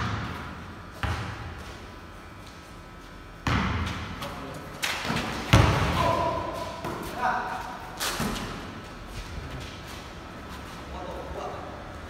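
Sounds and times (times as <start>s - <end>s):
basketball bouncing on concrete: 0.0s - 1.7s, 3.4s - 4.1s, 5.0s - 7.1s.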